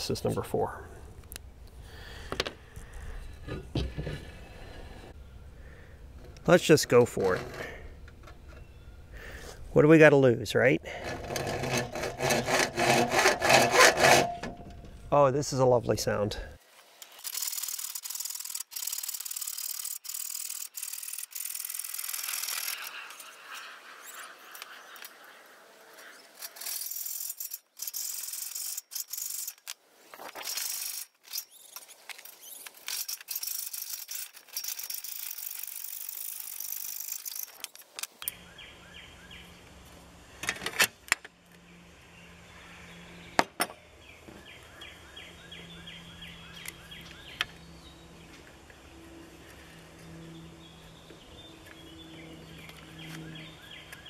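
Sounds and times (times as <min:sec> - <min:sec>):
birds chirping: 0:00.0 - 0:11.2, 0:38.1 - 0:40.4, 0:41.4 - 0:54.0
hacksaw cutting metal: 0:10.9 - 0:14.7, 0:26.3 - 0:29.7.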